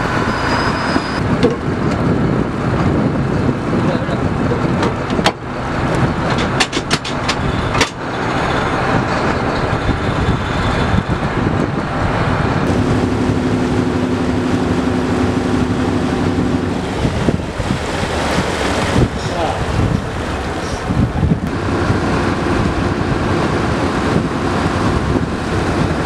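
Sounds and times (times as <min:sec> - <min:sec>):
boat engine running: 0:00.0 - 0:26.0
rushing water: 0:00.0 - 0:26.0
wind on microphone: 0:00.0 - 0:26.0
steady droning tone: 0:12.6 - 0:26.0.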